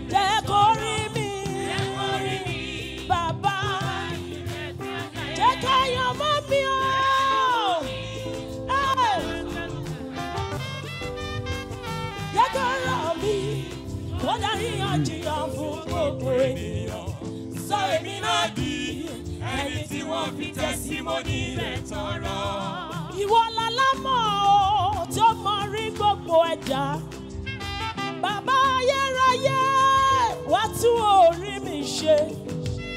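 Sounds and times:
gospel choir singing: 0:00.0 - 0:27.4
instrumental accompaniment: 0:00.0 - 0:32.9.

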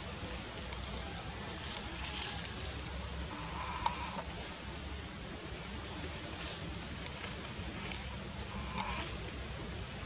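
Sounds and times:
high-pitched insect drone: 0:00.0 - 0:10.0
faint ticks: 0:00.6 - 0:01.0, 0:02.8 - 0:04.3, 0:07.0 - 0:09.2.

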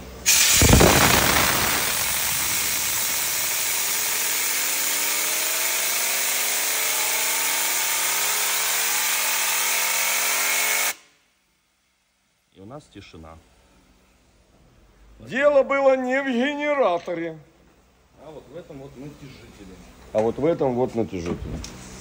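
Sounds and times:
compressed air hissing: 0:00.2 - 0:05.1
alternator whirring: 0:00.5 - 0:05.2.

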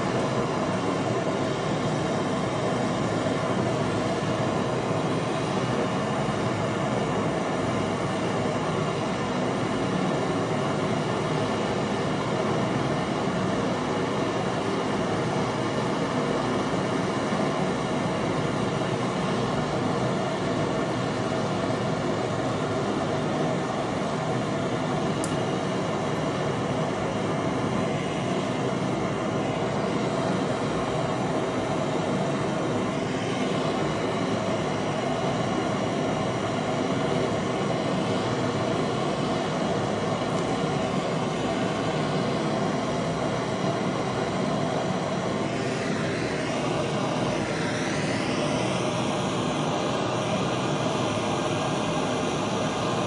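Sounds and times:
gas torch flame hissing: 0:00.0 - 0:53.0.

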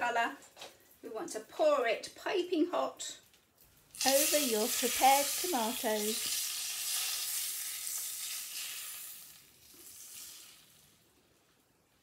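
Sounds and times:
hot butter sizzling: 0:03.6 - 0:11.4.

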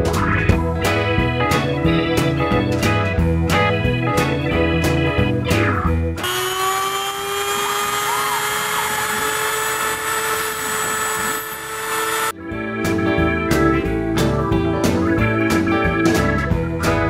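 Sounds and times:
high-speed spindle whine: 0:06.2 - 0:12.4.

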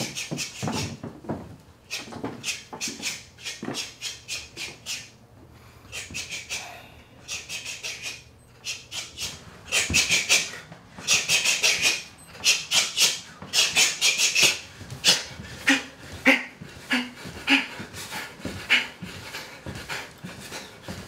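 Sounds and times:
dog panting: 0:08.6 - 0:21.0.

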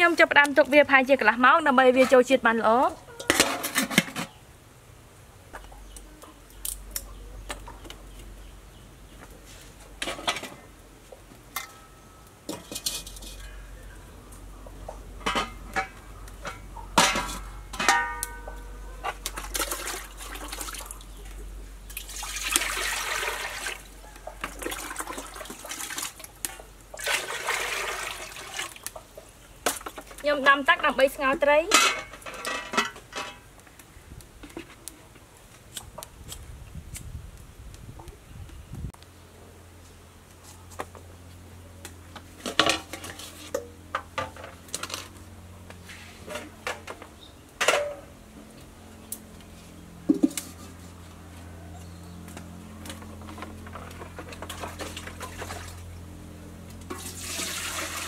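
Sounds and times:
metal pots and lids clanking: 0:03.1 - 0:04.4, 0:11.5 - 0:13.6, 0:15.2 - 0:19.8, 0:29.7 - 0:33.5, 0:46.2 - 0:48.1.

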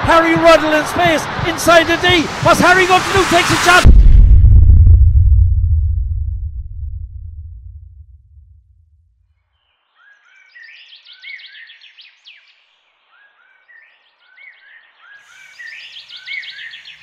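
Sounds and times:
birdsong chirps and whistles: 0:09.6 - 0:17.0.

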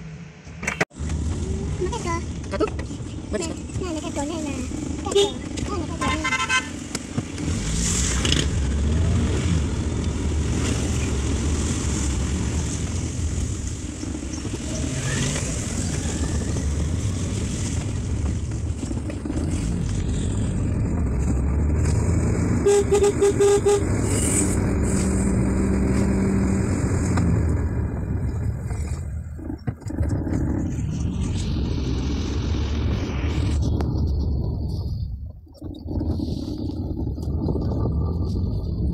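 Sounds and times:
car engine and tyre noise: 0:00.0 - 0:38.9
vehicle horn beeps: 0:22.6 - 0:23.9.

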